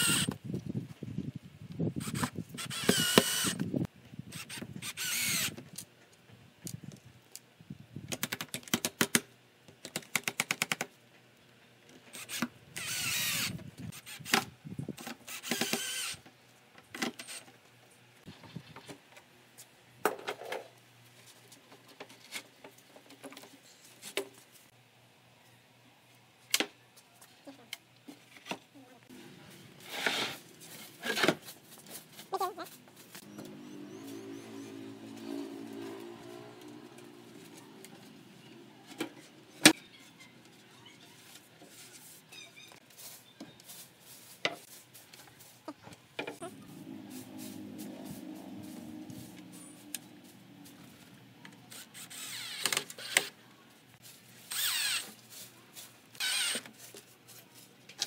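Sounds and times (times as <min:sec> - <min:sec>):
drill whirring: 0:00.0 - 0:00.3, 0:02.0 - 0:03.7, 0:04.4 - 0:05.5, 0:12.2 - 0:14.4, 0:15.3 - 0:16.2, 0:51.7 - 0:53.3, 0:54.5 - 0:55.0, 0:56.2 - 0:56.6.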